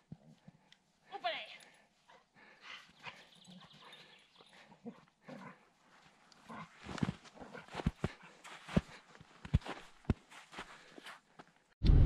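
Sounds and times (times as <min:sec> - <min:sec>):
footsteps in snow: 0:05.8 - 0:11.6.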